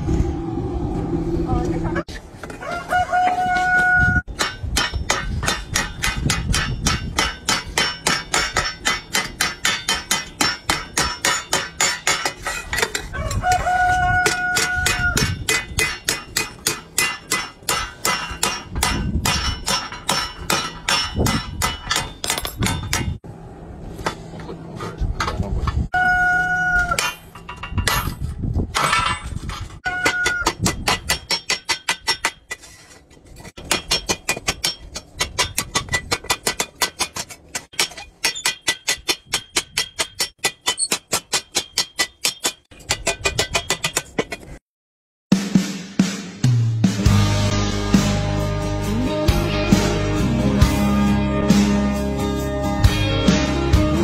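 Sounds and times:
rooster crowing: 2.6s - 4.2s, 13.1s - 15.2s, 25.9s - 27.0s
spring hammer striking metal: 4.3s - 12.9s, 14.6s - 23.2s.

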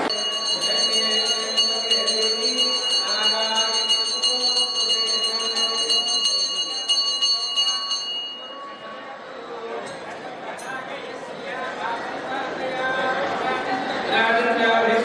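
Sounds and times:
temple bell ringing rapidly: 0.0s - 9.2s.

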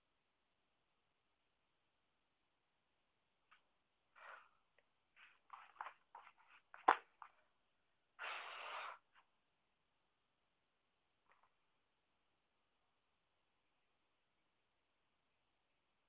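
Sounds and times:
paper rustling: 5.1s - 7.4s.

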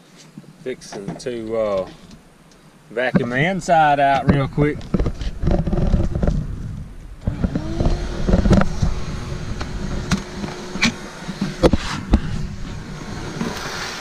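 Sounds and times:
low rumbling: 3.3s - 14.0s
shop vacuum motor whine: 7.2s - 14.0s.

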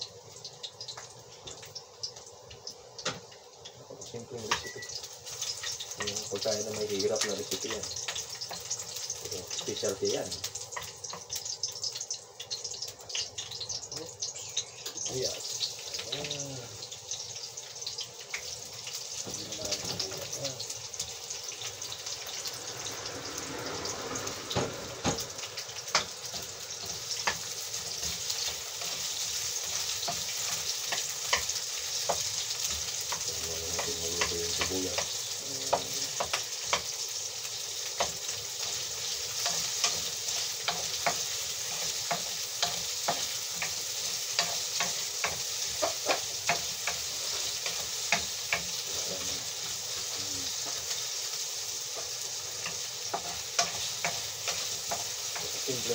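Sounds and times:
garlic sizzling in hot oil: 0.0s - 55.9s
spatula scraping and clacking on pan: 24.1s - 55.9s.

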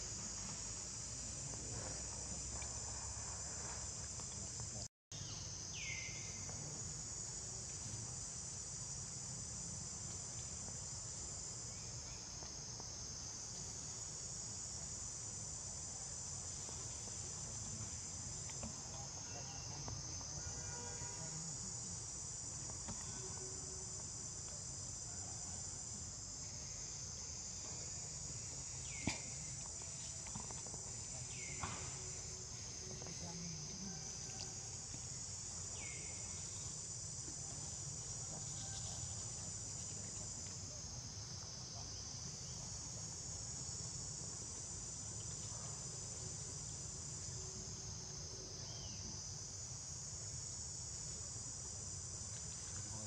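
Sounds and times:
high-pitched insect chorus: 0.0s - 53.0s.

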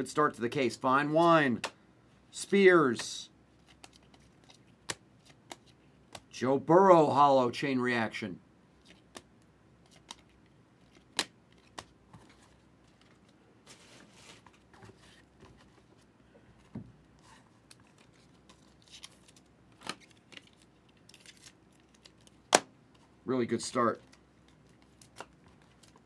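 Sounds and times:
cards sliding and rustling: 3.0s - 6.2s, 8.8s - 16.1s, 17.1s - 23.1s.

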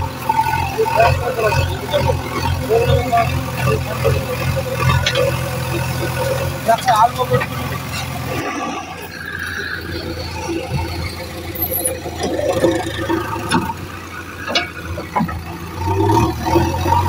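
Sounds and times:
diesel engine running under load: 0.0s - 17.0s
machine squeals: 0.1s - 16.3s
sharp metal clanks: 14.4s - 15.4s.

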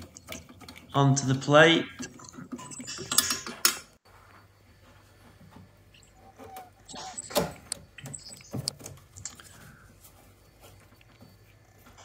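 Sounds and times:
tools clicking and knocking: 2.0s - 4.0s.

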